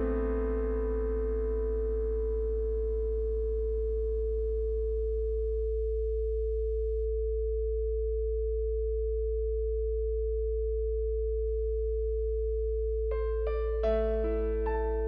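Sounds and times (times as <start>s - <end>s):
soft background music: 0.0s - 4.8s, 13.2s - 15.0s
clear higher sine tone: 0.0s - 15.0s
low electronic hum: 0.0s - 15.0s.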